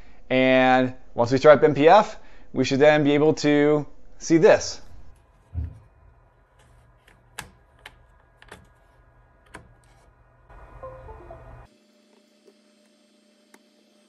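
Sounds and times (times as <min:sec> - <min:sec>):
computer device-connect chime: 0:10.8 - 0:11.7.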